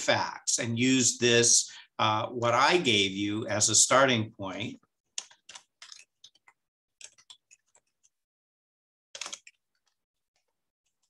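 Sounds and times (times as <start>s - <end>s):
faint keyboard typing: 5.1s - 8.2s, 9.1s - 11.0s.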